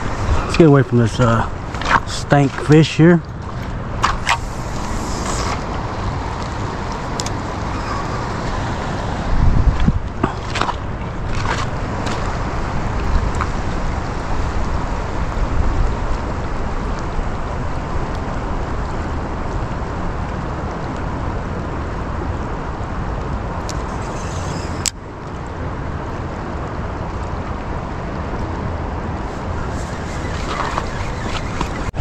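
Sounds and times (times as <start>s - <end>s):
river water rushing: 0.0s - 9.5s, 28.8s - 32.0s.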